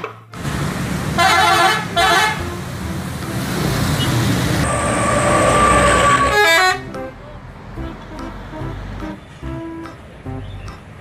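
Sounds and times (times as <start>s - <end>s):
engine and traffic noise: 0.3s - 11.0s
multi-tone bus horn: 1.1s - 7.2s
steady high tone: 2.4s - 7.0s.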